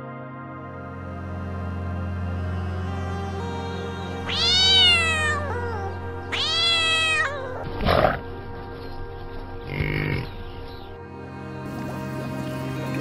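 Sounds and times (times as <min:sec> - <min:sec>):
soft background music: 0:00.0 - 0:13.0
drawn-out animal calls: 0:09.7 - 0:10.4.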